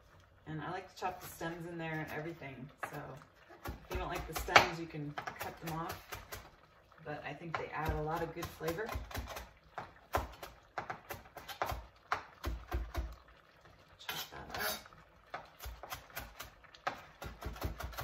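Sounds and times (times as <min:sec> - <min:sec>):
knife scraping board: 0:14.0 - 0:17.0
knife chopping on cutting board: 0:15.3 - 0:18.0.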